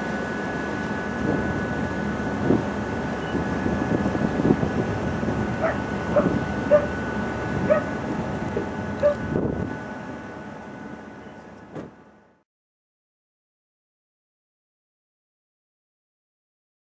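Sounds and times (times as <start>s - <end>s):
faint steady whine: 0.0s - 12.4s
steady low rumble: 0.0s - 12.4s
yelping animal calls: 5.6s - 6.9s.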